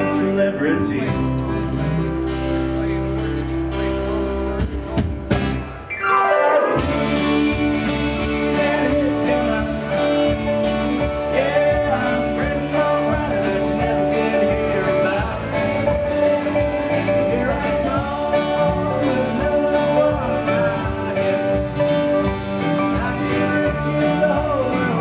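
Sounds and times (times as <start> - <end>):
country band playing: 0.0 - 25.0
guitar note sliding down: 5.6 - 11.2.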